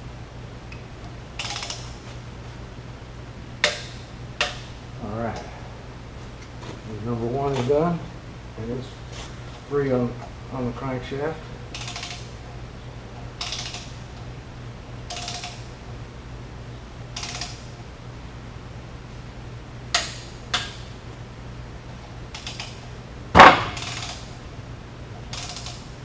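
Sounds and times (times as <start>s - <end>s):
torque wrench ratcheting: 1.4s - 1.9s, 11.7s - 12.3s, 13.4s - 14.0s, 15.1s - 15.6s, 17.2s - 17.6s, 22.3s - 22.8s, 23.8s - 24.3s, 25.3s - 25.9s
sharp metal clicks: 1.4s - 2.0s, 11.7s - 12.3s, 13.4s - 14.0s, 15.1s - 15.7s, 17.1s - 17.7s, 23.7s - 24.3s, 25.3s - 25.9s.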